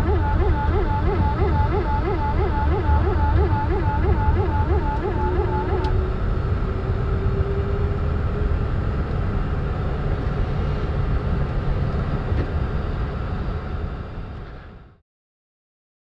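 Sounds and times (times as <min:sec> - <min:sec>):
faint steady tone: 0:00.0 - 0:06.0
engine and wheel rumble: 0:00.0 - 0:15.0.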